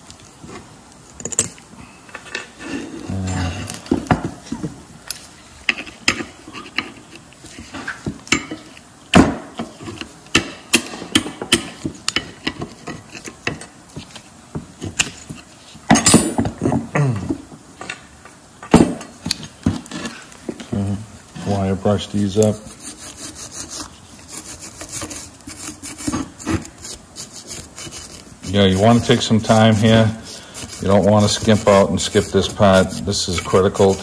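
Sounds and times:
metal scrape: 21.4s - 34.0s.

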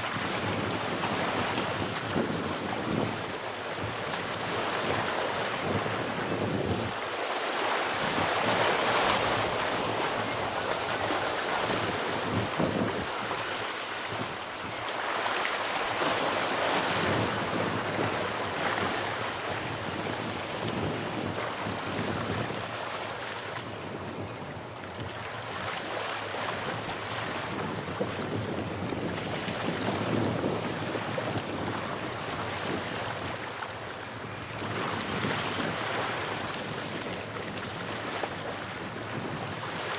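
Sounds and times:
sea waves washing over rocks: 0.0s - 23.5s
wind buffeting microphone: 0.0s - 33.5s, 34.1s - 39.9s.

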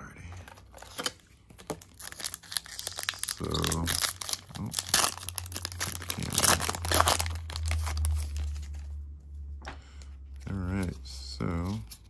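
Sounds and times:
foil pack crinkling: 0.7s - 8.8s.

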